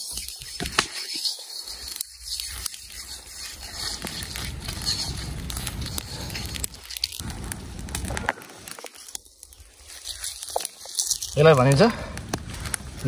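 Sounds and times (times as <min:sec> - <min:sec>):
hands rubbing mud on metal: 0:00.0 - 0:07.2, 0:09.8 - 0:11.7
wood fire crackling: 0:00.0 - 0:13.0.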